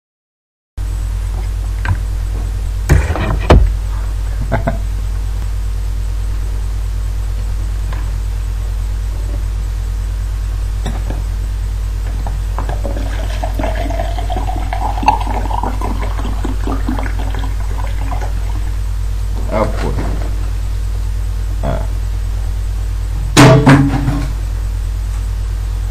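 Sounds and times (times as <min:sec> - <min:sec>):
steady low hum: 0:00.8 - 0:25.9
liquid pouring into cup: 0:12.7 - 0:18.8.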